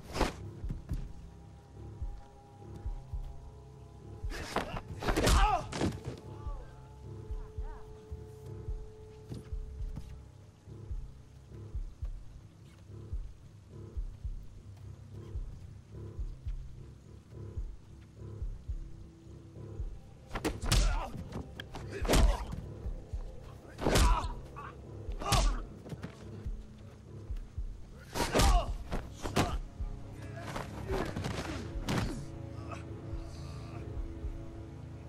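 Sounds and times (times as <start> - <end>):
background music score: 0.0 - 35.0
punch and kick impacts: 4.3 - 6.1, 20.3 - 21.2, 22.0 - 22.6, 23.8 - 24.3, 25.2 - 25.6, 28.2 - 29.6, 31.0 - 32.2.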